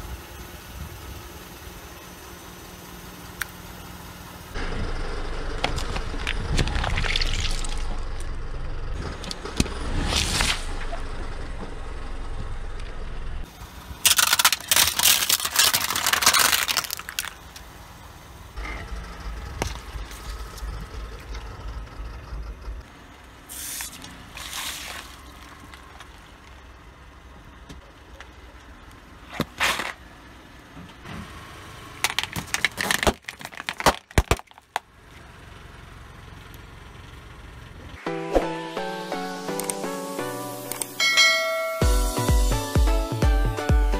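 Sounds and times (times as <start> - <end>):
car engine running low: 0.0 - 38.1
carton crunching and splashing: 5.7 - 7.9, 14.0 - 17.4, 23.8 - 25.8, 32.1 - 34.8
tyre crushing objects: 32.1 - 34.8.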